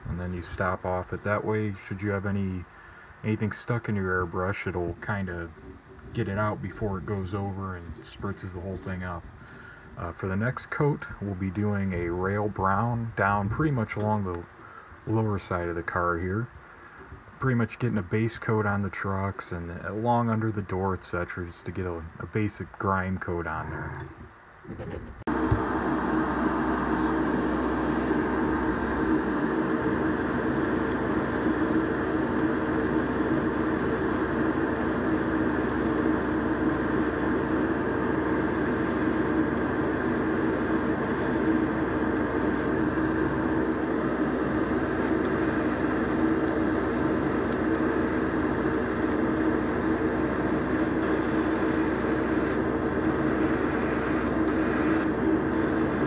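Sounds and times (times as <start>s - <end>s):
motor droning: 25.3s - 56.0s
airbrush air hiss: 29.7s - 42.7s, 44.2s - 56.0s.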